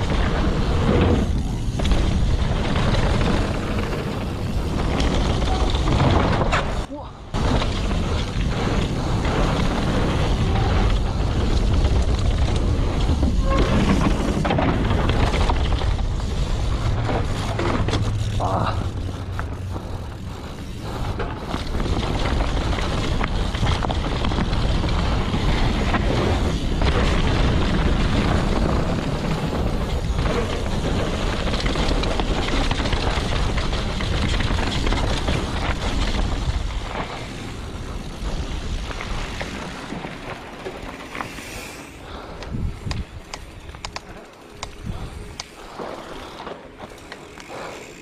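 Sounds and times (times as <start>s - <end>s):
bike rattling over bumps: 0.0s - 48.0s
tyres on dirt and gravel: 0.0s - 48.0s
wind buffeting microphone: 41.9s - 45.8s.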